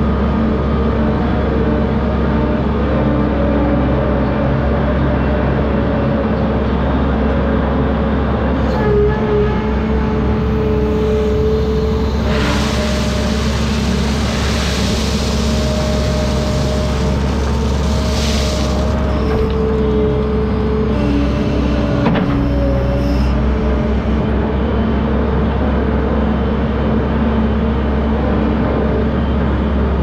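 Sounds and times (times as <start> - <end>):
diesel engine running: 0.0 - 30.0
hiss: 12.2 - 19.2.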